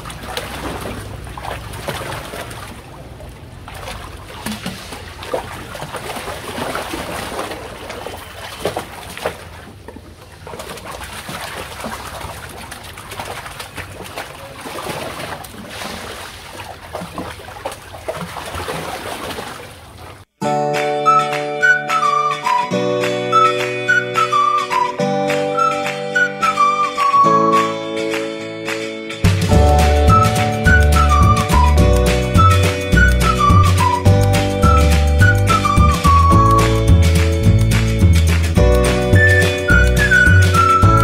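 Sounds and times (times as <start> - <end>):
pool water sloshing and splashing: 0.0 - 20.4.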